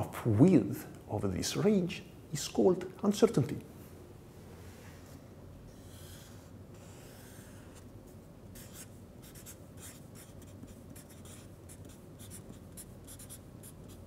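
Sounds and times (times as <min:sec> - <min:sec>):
marker rubbing on paper: 0:05.7 - 0:07.9, 0:08.6 - 0:14.0.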